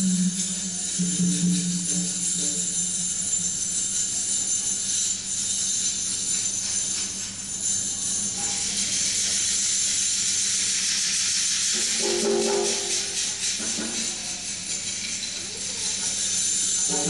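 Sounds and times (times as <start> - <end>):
low pitched tone: 0.0 - 3.6
jingling hand percussion: 0.0 - 17.0.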